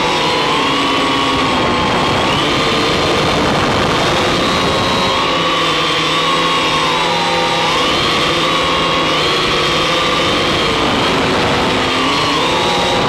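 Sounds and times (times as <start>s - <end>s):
drone propellers humming: 0.0s - 13.0s.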